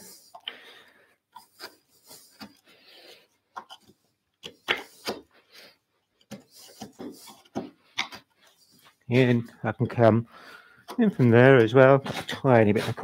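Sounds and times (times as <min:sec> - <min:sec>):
chisel scraping wood: 0:06.2 - 0:10.1, 0:10.9 - 0:13.0.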